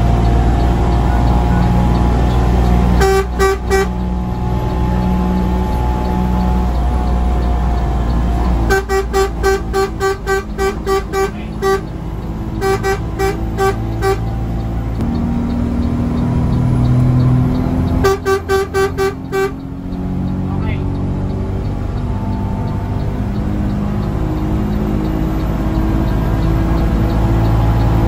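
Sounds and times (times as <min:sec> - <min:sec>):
bus engine running: 0:00.0 - 0:28.0
bus horn toots: 0:00.1 - 0:14.8, 0:17.2 - 0:20.1.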